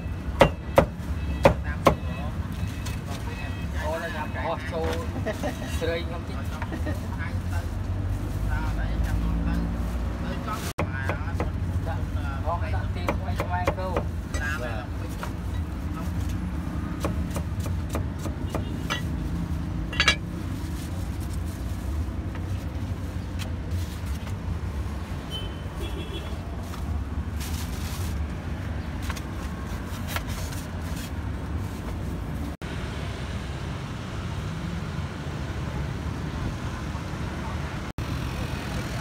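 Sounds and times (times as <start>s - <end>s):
cars and motorbikes passing: 0.0s - 39.0s
street traffic hum: 0.0s - 39.0s.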